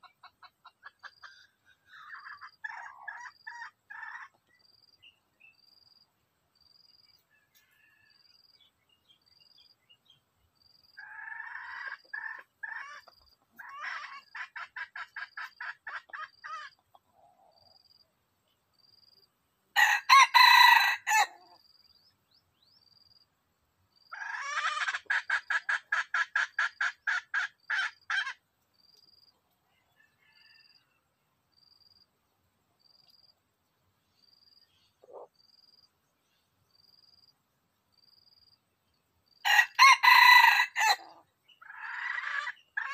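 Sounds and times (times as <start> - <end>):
rapid clucks: 0.0 - 4.4
rooster crowing: 19.8 - 21.4, 39.4 - 41.1.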